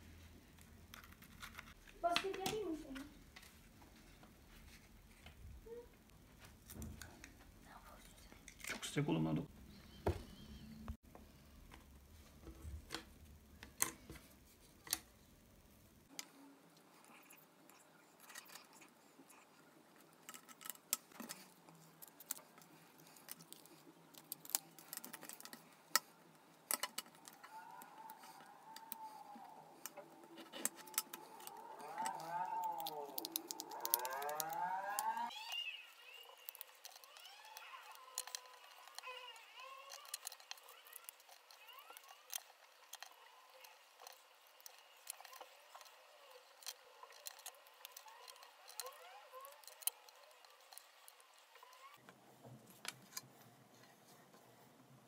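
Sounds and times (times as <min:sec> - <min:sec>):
scissors cutting: 0:26.7 - 0:51.9
wooden sticks clicking and tapping: 0:26.7 - 0:52.2
wailing tone: 0:27.2 - 0:42.5.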